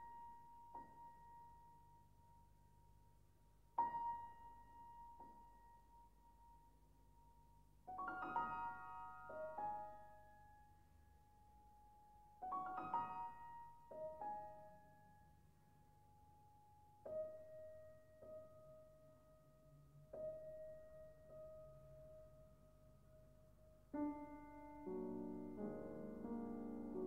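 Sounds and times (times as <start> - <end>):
soft solo piano: 3.8 - 6.8, 7.8 - 15.4, 16.4 - 27.0.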